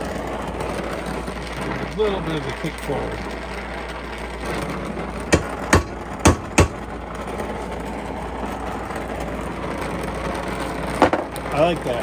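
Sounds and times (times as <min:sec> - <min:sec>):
gas torch hissing: 0:00.0 - 0:12.0
sharp metal knocks: 0:05.3 - 0:06.8.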